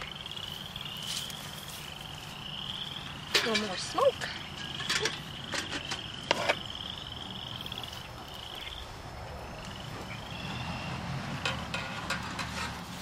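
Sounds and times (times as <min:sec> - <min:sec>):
frogs trilling: 0:00.0 - 0:11.1.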